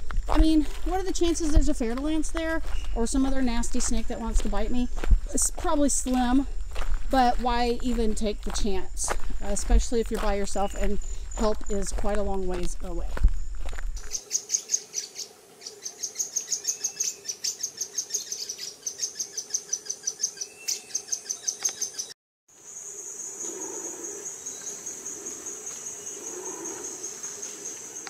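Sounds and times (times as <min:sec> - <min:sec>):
insects chirping rhythmically: 0:00.1 - 0:28.0
steady high insect trill: 0:13.2 - 0:28.0.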